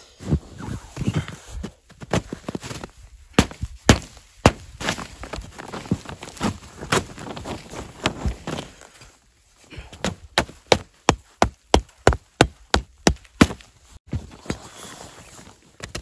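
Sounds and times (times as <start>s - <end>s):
hatchet hammering wooden stake: 3.4s - 4.7s, 10.0s - 13.6s.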